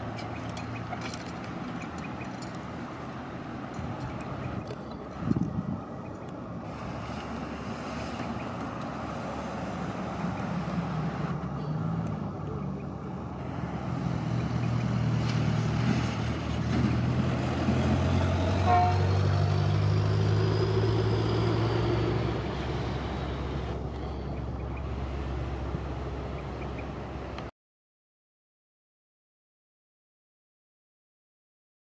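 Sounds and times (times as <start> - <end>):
train wheels rumbling on track: 0.0 - 26.6
high wheel squeal: 18.5 - 24.4.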